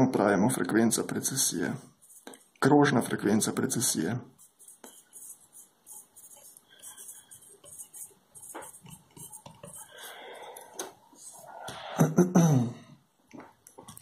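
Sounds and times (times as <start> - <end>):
pen scratching on paper: 2.0 - 2.5, 4.4 - 11.6.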